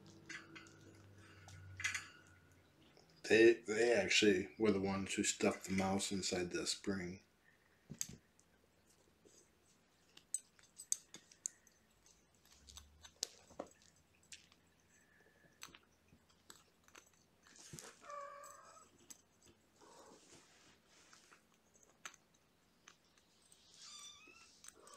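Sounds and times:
kittens pouncing clicks and scuffs: 0:10.0 - 0:14.7.

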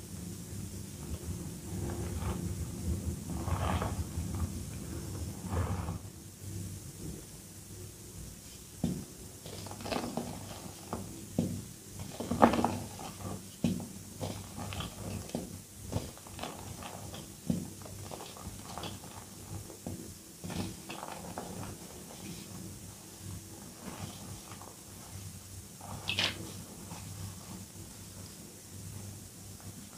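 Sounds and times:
chalk crunching and crumbling: 0:08.8 - 0:25.2.

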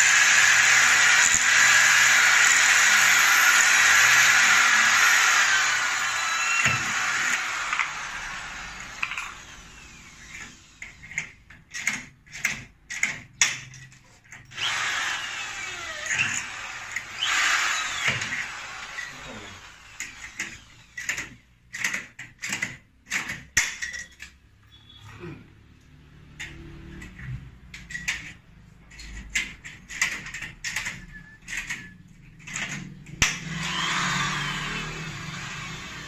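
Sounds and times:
cordless drill whirring: 0:00.0 - 0:11.1, 0:14.5 - 0:21.4, 0:32.6 - 0:36.0.

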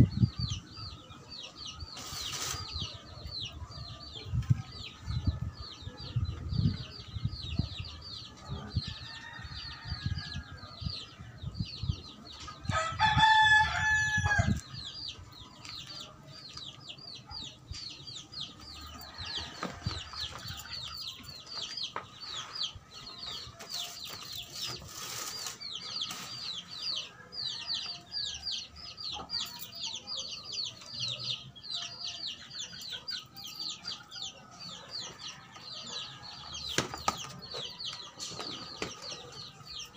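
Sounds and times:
rooster crowing: 0:12.7 - 0:14.6.

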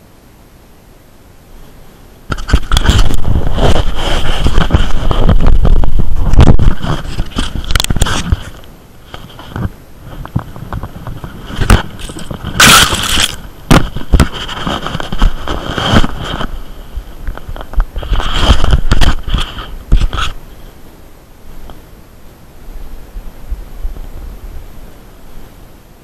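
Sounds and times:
close rustling and scraping: 0:01.6 - 0:20.9.

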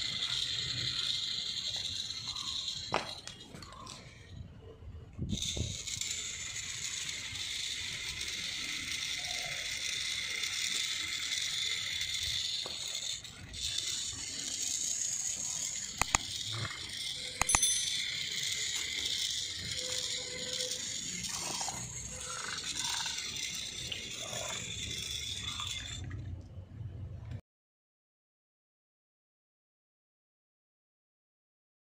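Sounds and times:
toy motor whirring: 0:00.0 - 0:26.2
sharp clicks: 0:15.9 - 0:16.7, 0:17.4 - 0:18.0.

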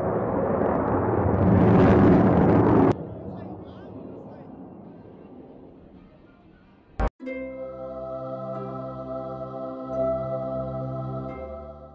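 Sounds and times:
ambient music held chord: 0:07.2 - 0:11.9.

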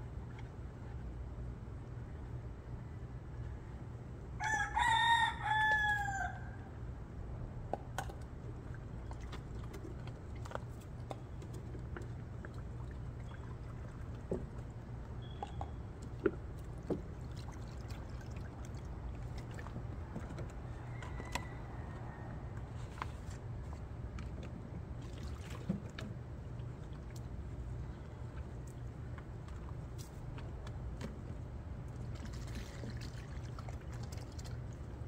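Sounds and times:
steady low hum: 0:00.0 - 0:05.5, 0:06.3 - 0:35.0
rooster crowing: 0:04.4 - 0:06.7, 0:20.7 - 0:22.5.

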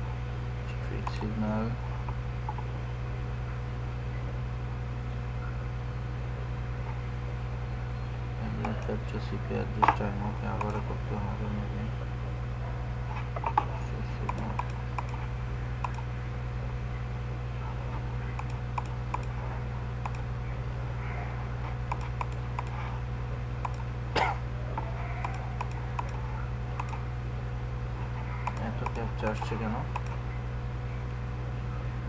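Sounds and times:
steady low hum: 0:00.0 - 0:32.0
computer mouse clicking: 0:10.6 - 0:10.8, 0:13.4 - 0:15.2, 0:15.8 - 0:16.1, 0:18.4 - 0:19.3, 0:20.0 - 0:20.2, 0:21.9 - 0:22.8, 0:23.6 - 0:23.9, 0:24.8 - 0:26.2, 0:26.8 - 0:27.0, 0:28.4 - 0:30.2.

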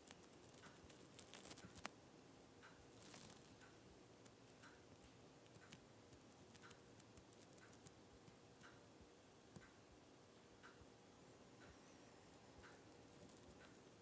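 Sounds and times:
light ticking: 0:02.6 - 0:08.9.

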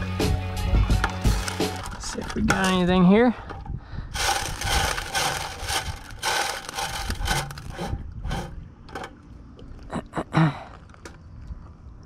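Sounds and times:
gravel scraping on metal screen: 0:01.2 - 0:02.8, 0:04.2 - 0:09.1.

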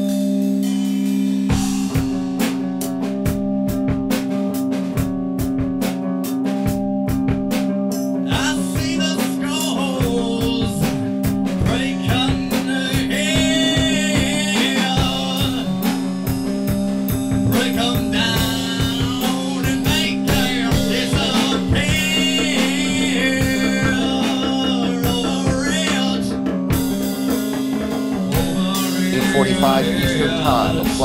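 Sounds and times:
song with guitar and singing: 0:08.2 - 0:31.0
sustained low drone: 0:28.3 - 0:31.0.

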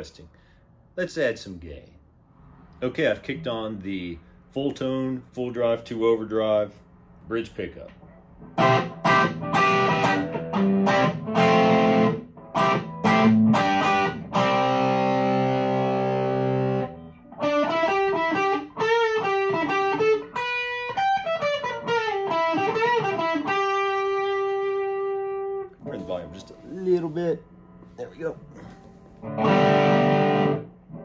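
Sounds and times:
overdriven electric guitar: 0:08.4 - 0:26.1, 0:28.6 - 0:31.0.

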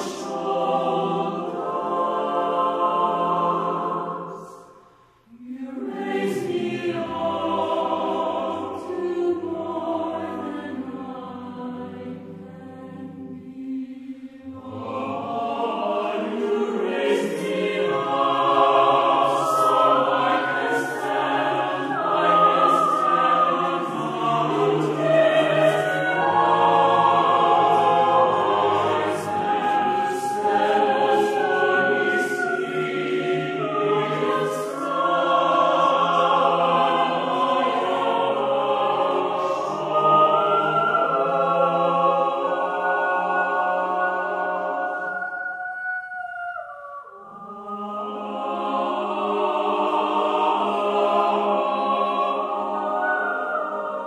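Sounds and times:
choir singing: 0:00.0 - 0:54.0.

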